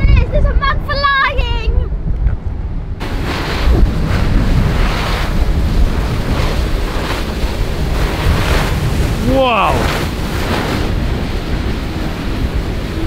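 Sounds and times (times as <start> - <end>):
wind buffeting microphone: 0.0 - 13.0
water spray rushing: 3.0 - 13.0.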